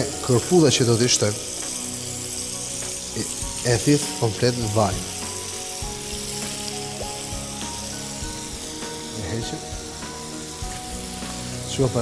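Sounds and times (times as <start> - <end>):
mushrooms sizzling in a frying pan: 0.0 - 12.0.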